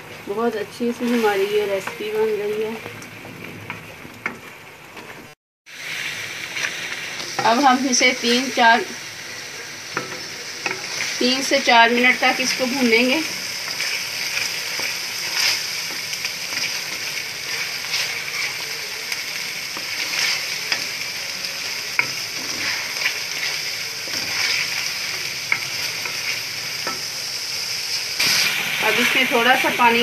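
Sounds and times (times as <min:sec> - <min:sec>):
meat sizzling in a pot: 0:00.0 - 0:30.0
wooden spatula scraping pot: 0:22.0 - 0:24.9.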